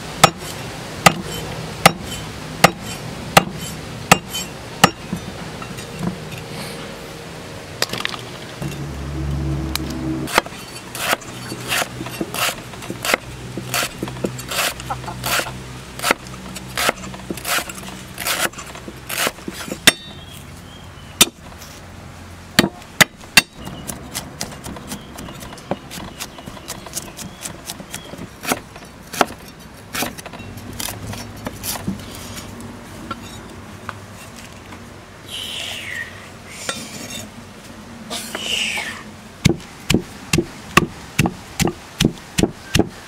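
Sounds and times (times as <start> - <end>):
cleaver chopping on wooden block: 1.1 - 5.0, 16.8 - 20.2, 21.2 - 21.4, 22.6 - 29.4, 39.4 - 43.0.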